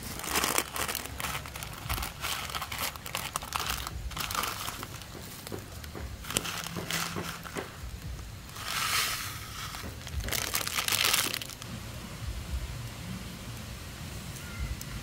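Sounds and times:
plastic packet crinkling: 0.0 - 7.8, 8.4 - 11.6.

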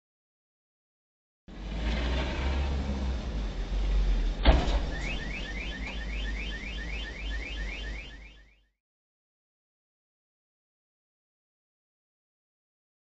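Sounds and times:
steady low hum: 2.6 - 8.6
sharp thump: 4.4 - 5.2
car alarm chirping: 4.8 - 8.8.

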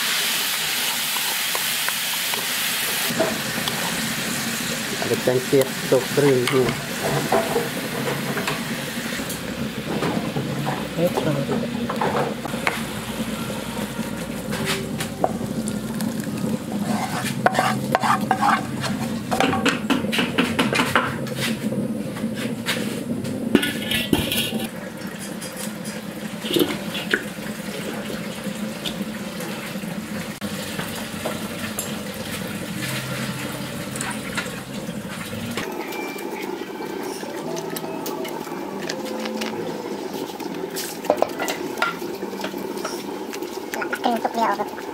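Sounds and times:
pots and utensils clattering: 2.9 - 4.0, 4.9 - 12.9, 14.3 - 29.6, 30.4 - 44.9
spatula scraping metal pan: 16.7 - 19.2, 23.6 - 24.7
wet liquid sounds: 36.0 - 44.9.

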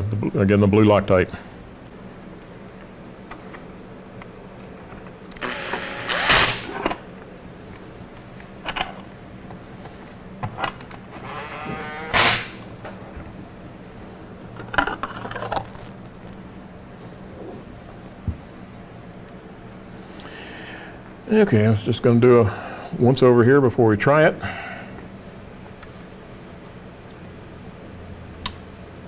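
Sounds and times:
cordless drill motor whirring: 5.4 - 6.6.

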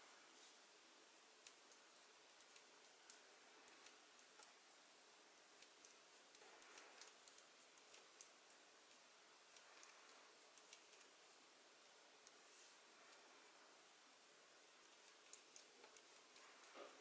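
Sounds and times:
room tone hiss: 0.0 - 17.0
knitting needles clicking: 1.4 - 4.8, 5.5 - 11.2, 14.9 - 17.0.

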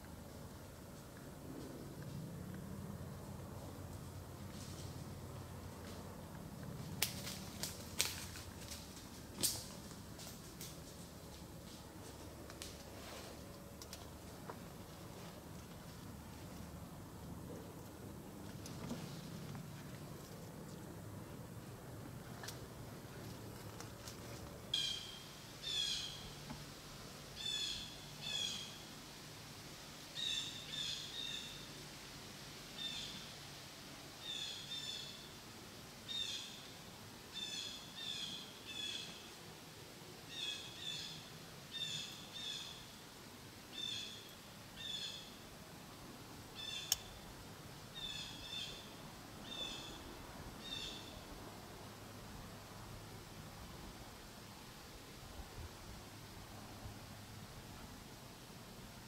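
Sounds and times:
bird calling: 24.7 - 26.4, 46.6 - 47.2, 48.0 - 50.0.

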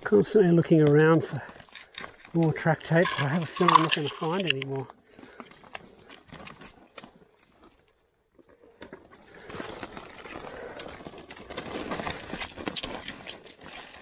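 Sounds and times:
footsteps on sticks and leaves: 1.3 - 14.0
twigs cracking and snapping: 5.4 - 7.6, 8.8 - 14.0.

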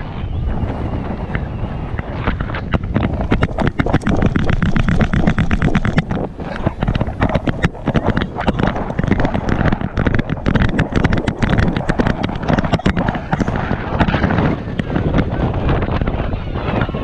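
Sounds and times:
wind on microphone: 0.0 - 17.0
camera knocking and rattling in harness: 2.3 - 15.3.

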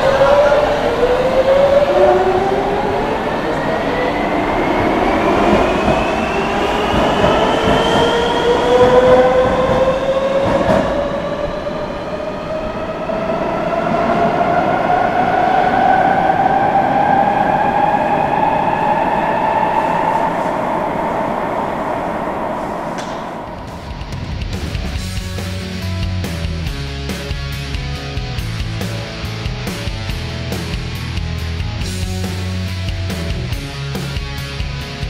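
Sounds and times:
train traction motors whining: 0.0 - 25.1
train wheels rolling on rails: 0.0 - 25.4.

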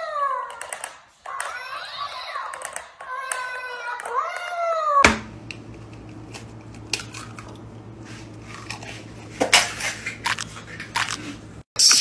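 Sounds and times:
eggs cracking against a bowl: 5.5 - 7.7.

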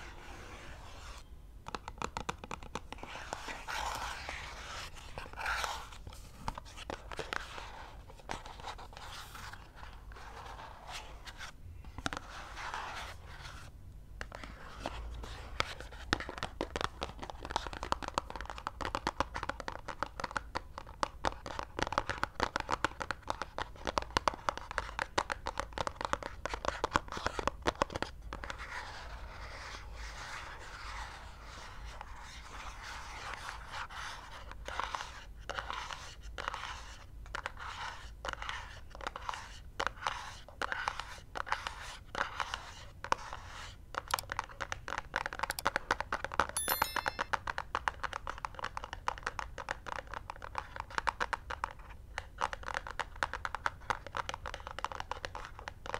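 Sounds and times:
fingernails scratching cardboard: 0.0 - 1.2.

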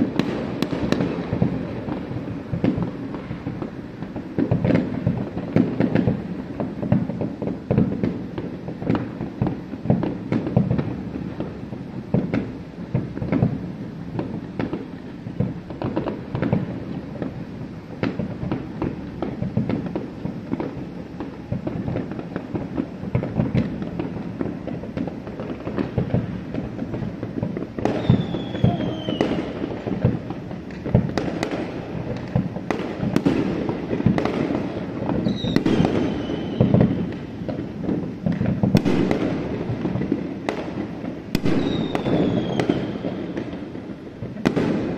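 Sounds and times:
fireworks booming and crackling: 0.0 - 44.9
falling firework whistle: 27.8 - 30.1, 35.1 - 37.6, 41.3 - 43.6.

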